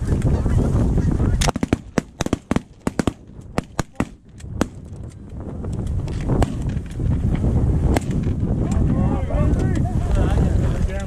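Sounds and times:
wind buffeting microphone: 0:00.0 - 0:11.0
shotgun blasts: 0:01.4 - 0:04.8, 0:06.4 - 0:06.7, 0:07.9 - 0:08.2.

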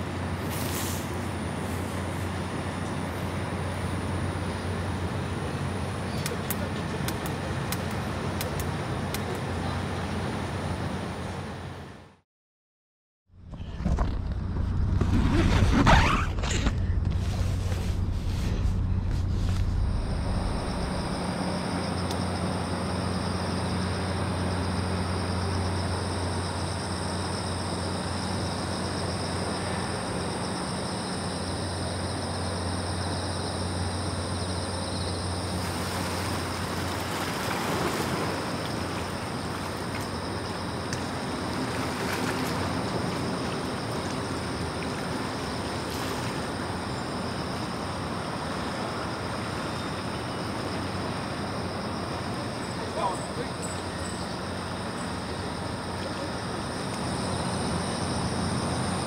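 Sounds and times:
steady low hum: 0:13.4 - 0:59.0
sea waves washing on shore: 0:35.5 - 0:49.6.

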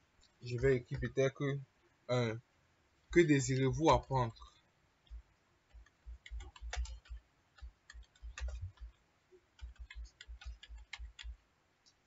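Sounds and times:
computer keyboard keys clicking: 0:05.1 - 0:09.0, 0:09.6 - 0:11.4.

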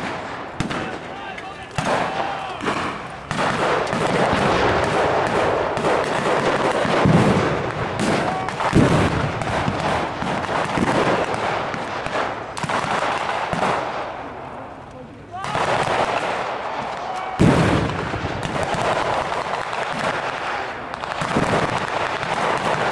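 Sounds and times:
heavy booms: 0:00.0 - 0:14.0, 0:17.4 - 0:19.1
rifle and machine-gun fire: 0:00.0 - 0:14.3, 0:15.4 - 0:22.9.

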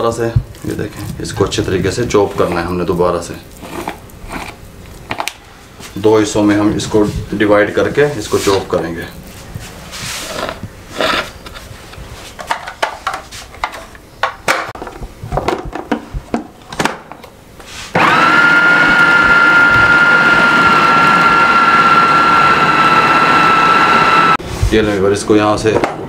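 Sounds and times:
food processor motor whine: 0:18.0 - 0:24.4.

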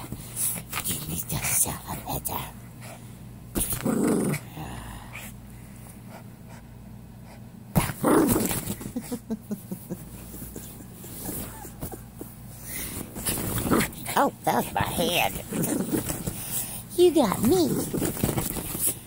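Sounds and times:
small dog growling: 0:03.6 - 0:05.3, 0:07.8 - 0:09.2, 0:13.2 - 0:16.6.

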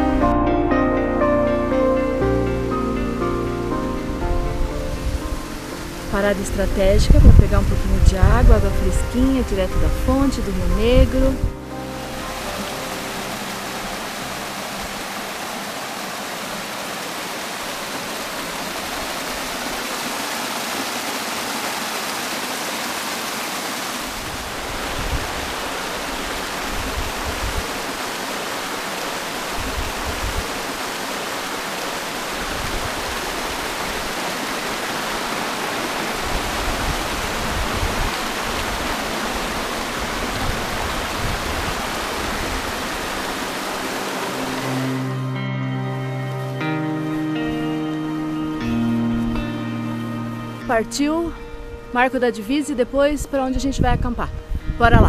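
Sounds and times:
waterfall splashing over rocks: 0:02.6 - 0:45.4.

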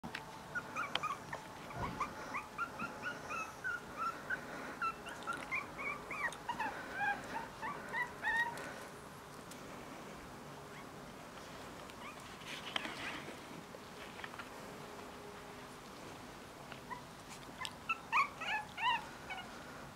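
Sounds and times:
puppies squeaking and whimpering: 0:00.5 - 0:08.8, 0:12.0 - 0:13.3, 0:16.9 - 0:19.6.

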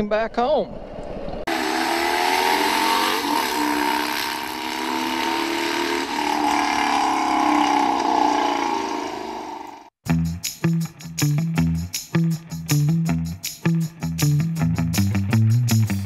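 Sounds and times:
motorcycle engine at high revs: 0:01.5 - 0:10.0.

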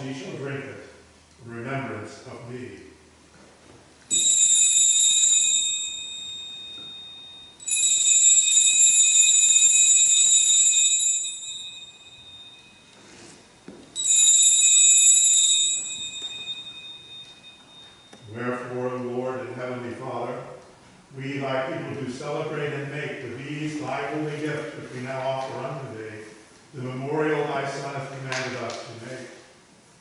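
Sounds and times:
small altar bells ringing: 0:04.1 - 0:19.0.

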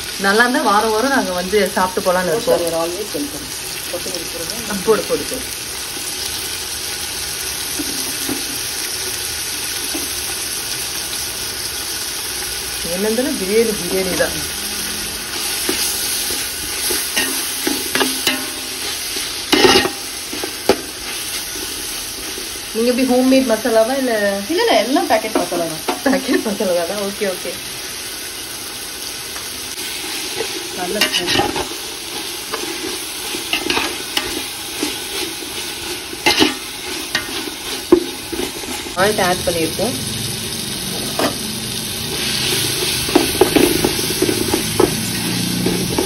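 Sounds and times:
food sizzling in hot oil: 0:00.0 - 0:46.0
utensil scraping a pan: 0:13.6 - 0:23.7, 0:29.8 - 0:39.3, 0:42.0 - 0:46.0
spoon knocking against pot: 0:43.0 - 0:46.0.

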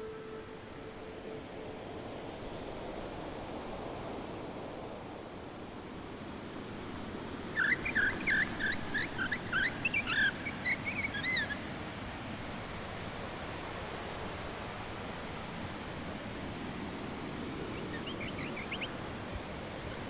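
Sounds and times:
low outdoor hiss: 0:00.0 - 0:20.0
bird warbling chirps: 0:17.9 - 0:18.9.

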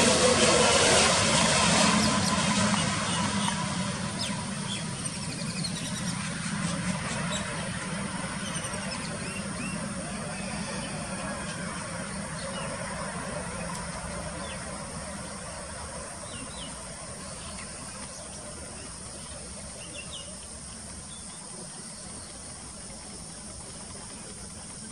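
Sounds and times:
distant jet engines: 0:00.0 - 0:24.9.

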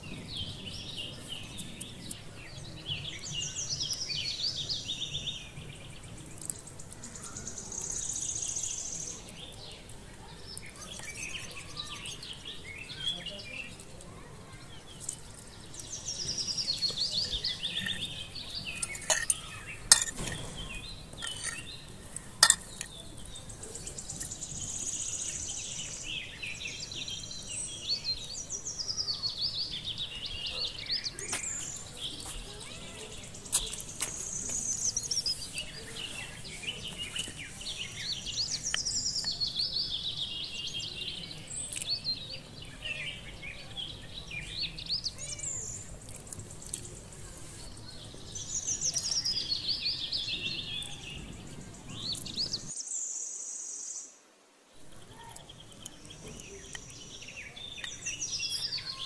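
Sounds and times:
birds chirping: 0:00.0 - 0:54.1, 0:54.8 - 0:59.0
kitchenware clinking: 0:18.8 - 0:20.4, 0:21.2 - 0:21.7, 0:22.4 - 0:22.9.

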